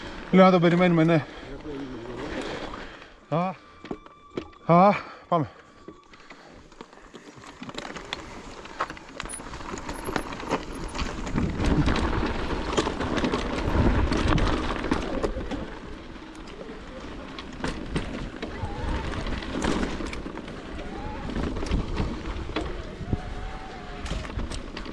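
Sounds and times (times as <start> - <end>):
bike knocking and rattling: 6.0 - 24.9.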